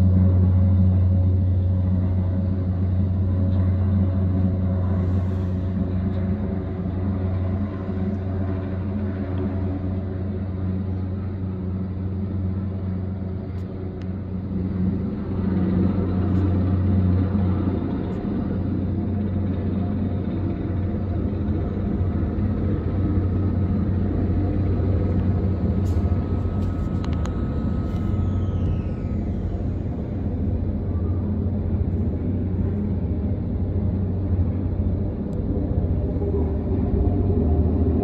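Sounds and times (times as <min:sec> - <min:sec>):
helicopter rotor and engine drone: 0:00.0 - 0:38.0.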